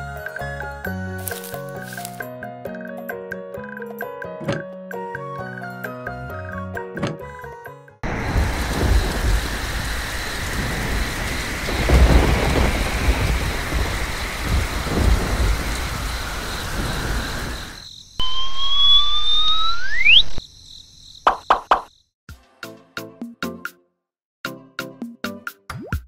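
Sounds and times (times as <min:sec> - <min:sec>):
heavy rain: 0:08.0 - 0:17.8
thunder rumbling: 0:08.0 - 0:17.8
rising whistle-like tone: 0:18.2 - 0:20.4.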